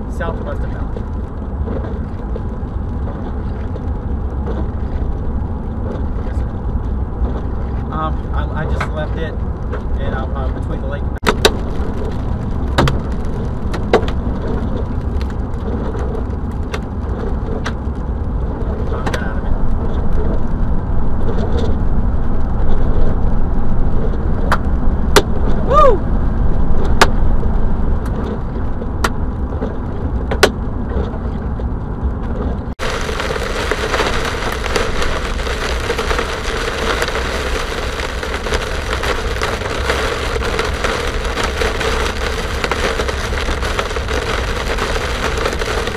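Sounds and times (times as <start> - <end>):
car driving heard from cabin: 0.0 - 45.9
heavy rain beating on car: 0.0 - 45.9.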